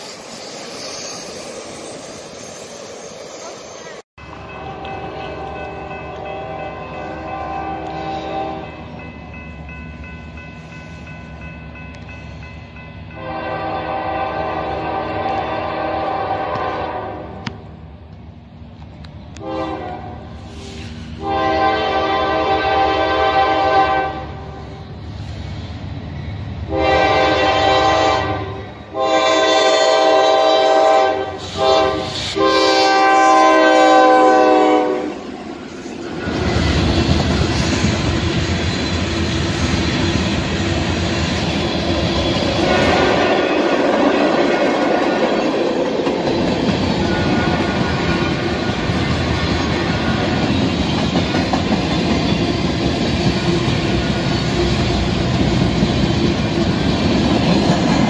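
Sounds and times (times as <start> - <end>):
train rumbling by: 0.0 - 58.0
locomotive air horn blasts: 4.5 - 8.8, 13.1 - 17.5, 19.4 - 24.7, 26.7 - 35.3, 42.6 - 43.6.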